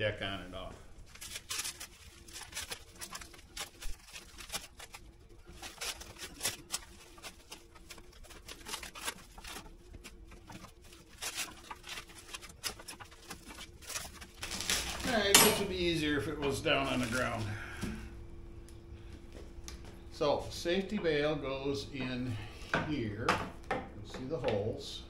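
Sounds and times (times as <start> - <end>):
plastic wrap crinkling: 0.2 - 17.6.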